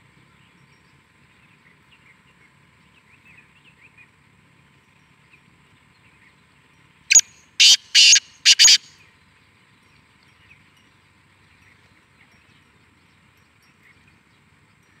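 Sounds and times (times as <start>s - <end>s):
bird rasping call: 7.1s - 8.9s.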